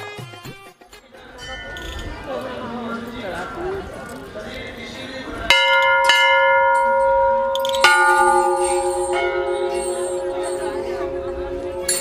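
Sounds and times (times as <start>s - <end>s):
lower-pitched bell ringing: 5.5s - 12.0s
metal temple bell ringing: 5.5s - 12.0s.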